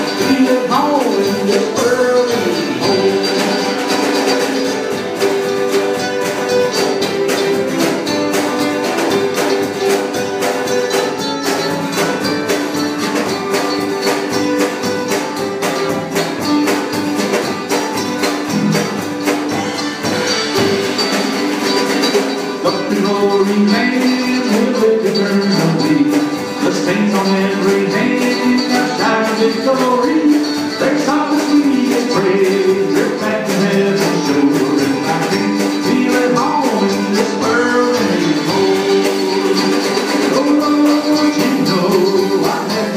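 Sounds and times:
drum kit: 0.0 - 42.9
mandolin: 0.0 - 42.9
strummed acoustic guitar: 0.0 - 42.9.

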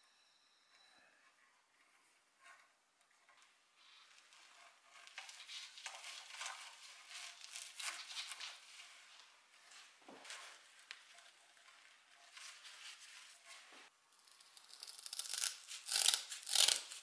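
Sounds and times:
hair rustling and scratching: 4.2 - 13.9.

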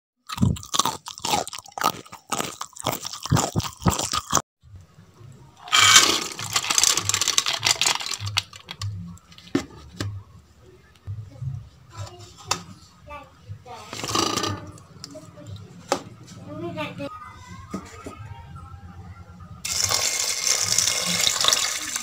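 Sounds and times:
crunching: 0.3 - 4.4, 5.6 - 8.9.

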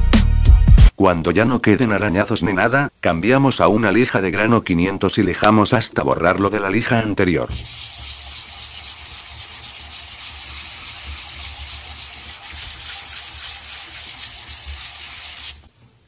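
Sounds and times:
sandpaper scratching plastic: 7.5 - 15.7.

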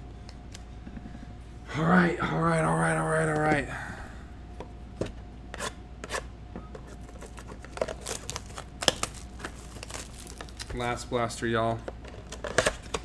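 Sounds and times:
wrapper crinkling: 7.1 - 11.0
cardboard box torn open: 7.8 - 10.7.

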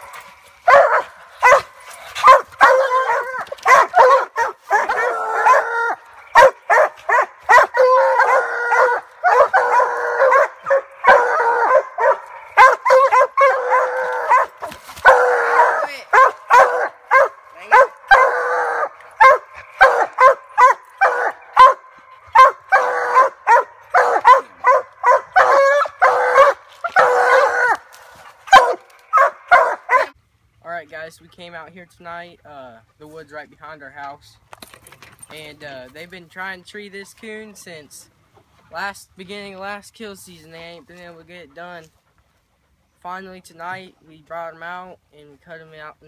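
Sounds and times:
hounds barking and bawling: 0.0 - 30.6.

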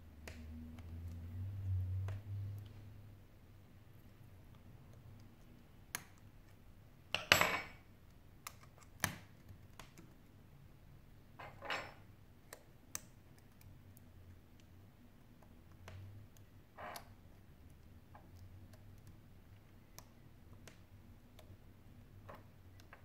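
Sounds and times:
metal tool clattering on desk: 7.2 - 7.8, 11.4 - 12.0.

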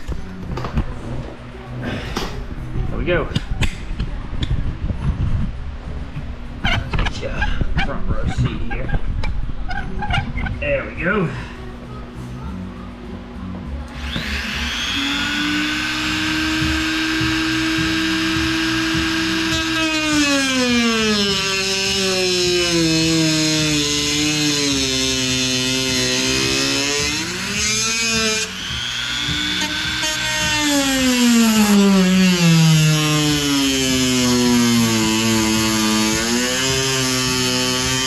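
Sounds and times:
rotary tool cutting plastic: 14.0 - 38.0.

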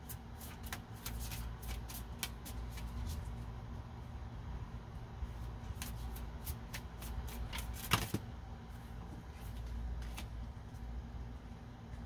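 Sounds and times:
cards shuffling and snapping: 0.0 - 3.3, 5.7 - 8.2.

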